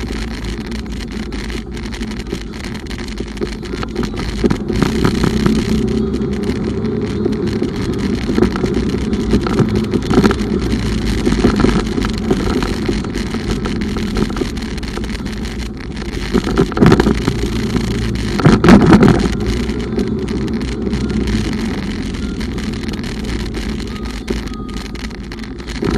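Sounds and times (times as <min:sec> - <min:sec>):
motorcycle engine: 0:00.0 - 0:25.9
wind on microphone: 0:00.0 - 0:25.9.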